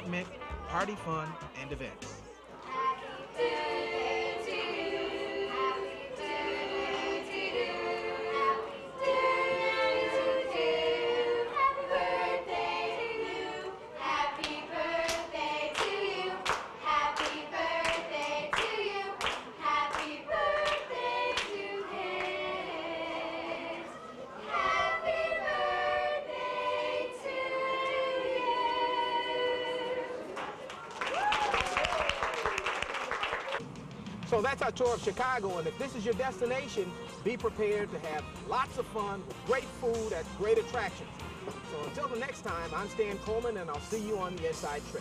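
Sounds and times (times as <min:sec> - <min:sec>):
hand claps keeping time: 0:00.1 - 0:01.3, 0:14.4 - 0:21.6
girls singing together: 0:02.6 - 0:30.6.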